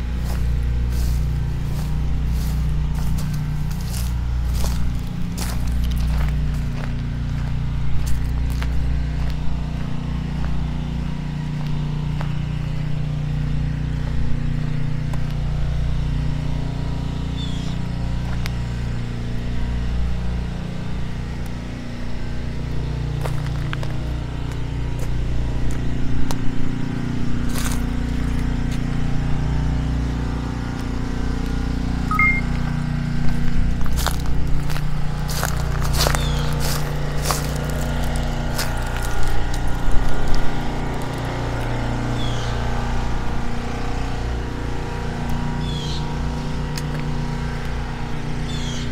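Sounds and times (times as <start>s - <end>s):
low engine drone: 0.0s - 48.9s
scrapes on pavement: 0.1s - 10.6s, 23.2s - 25.9s, 27.4s - 28.9s, 33.3s - 42.4s
light footsteps on pavement: 0.1s - 12.9s, 15.0s - 15.5s, 18.2s - 18.6s, 23.2s - 26.5s, 27.4s - 29.0s, 32.5s - 42.4s, 46.7s - 47.8s.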